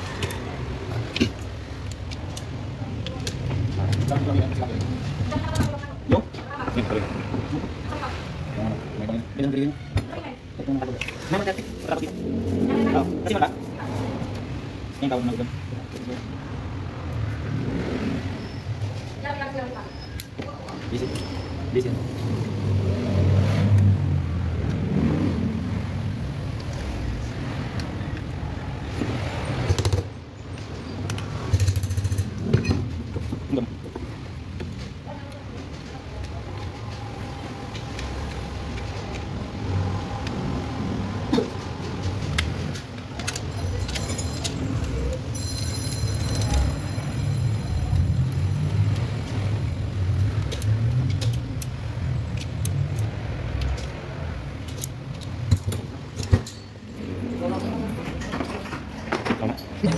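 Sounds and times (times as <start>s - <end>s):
screwdriver and screws clinking on metal: 42.6s - 49.4s, 50.2s - 57.0s.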